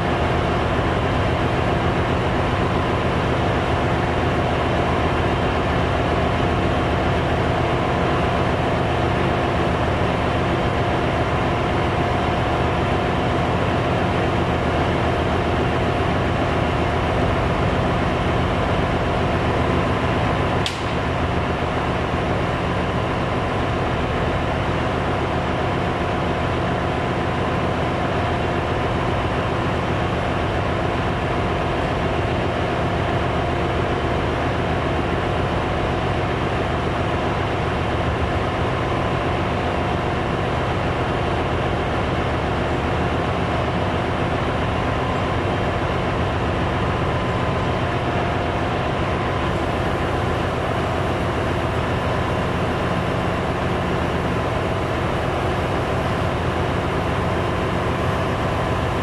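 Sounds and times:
engine room machinery drone: 0.0s - 59.0s
brief click: 20.6s - 21.0s.

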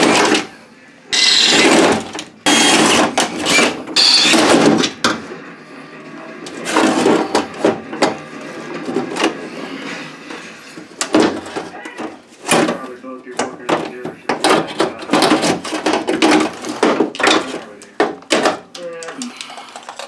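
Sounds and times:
metal parts clunking and rattling: 0.0s - 0.5s, 1.2s - 5.4s, 6.5s - 9.6s, 10.3s - 20.0s
cordless drill drilling: 1.1s - 1.8s, 2.5s - 4.4s.

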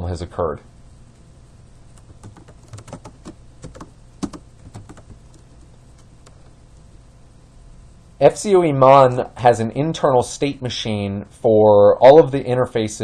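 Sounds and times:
keyboard key clicks: 2.0s - 5.4s.

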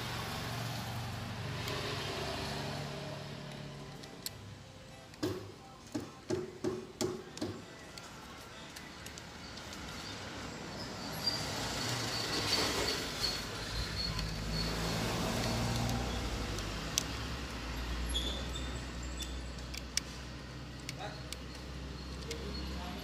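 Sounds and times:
vehicle passing rumble: 0.0s - 3.9s.

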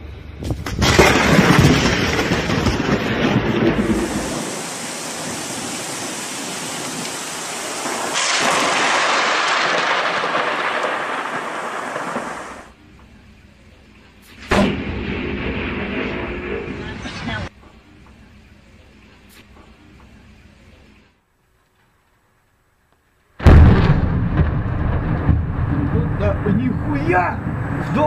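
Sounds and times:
thunder crack and rumble: 0.0s - 12.8s, 14.4s - 17.5s, 23.4s - 28.0s
rain hissing: 0.9s - 21.4s.

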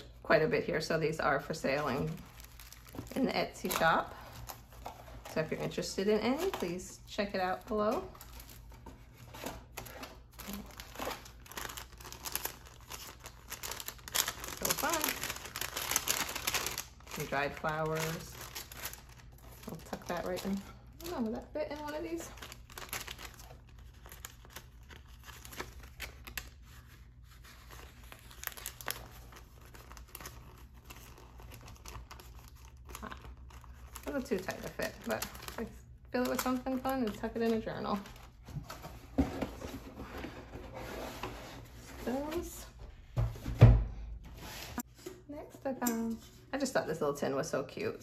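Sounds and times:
paper envelopes crinkling: 1.5s - 39.0s.

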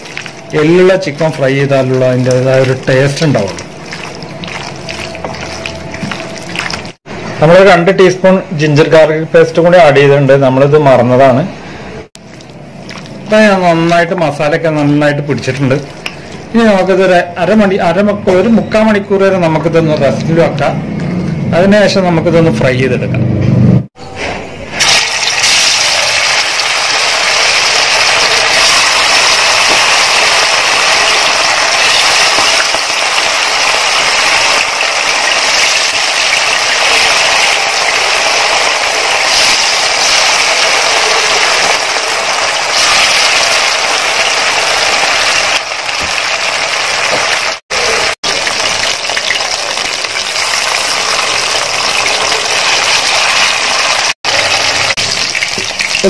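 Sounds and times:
chicken deep-frying in oil: 0.0s - 7.1s, 24.7s - 56.0s.

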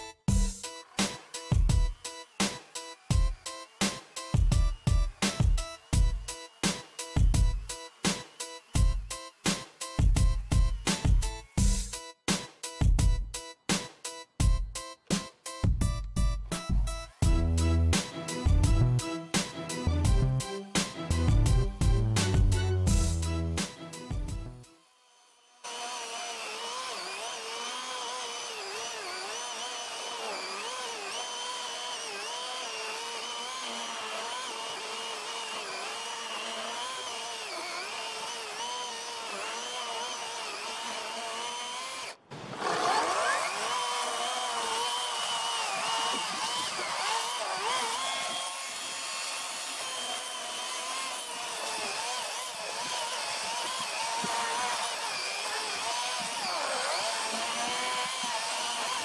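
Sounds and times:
electric chainsaw cutting wood: 0.0s - 15.6s, 16.2s - 59.0s.

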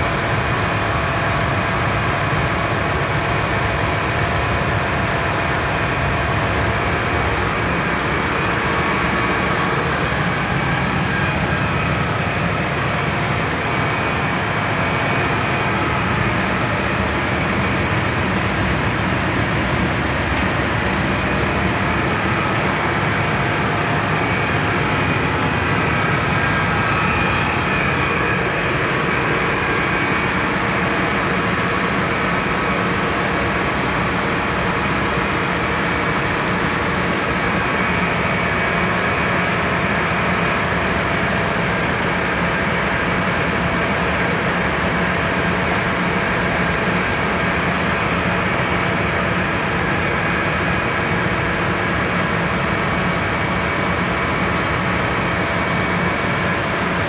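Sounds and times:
incinerator machinery running: 0.0s - 57.0s.

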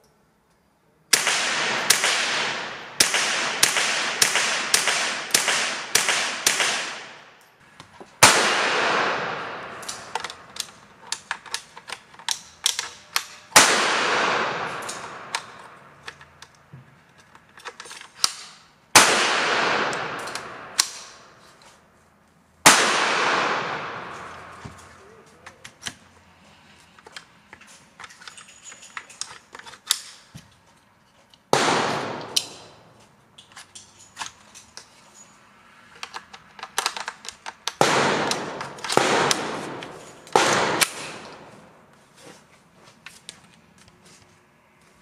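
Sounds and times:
rifle shots: 1.1s - 7.3s, 8.2s - 10.7s, 13.6s - 15.7s, 18.9s - 21.2s, 22.6s - 24.6s, 31.5s - 32.9s, 37.8s - 41.7s.

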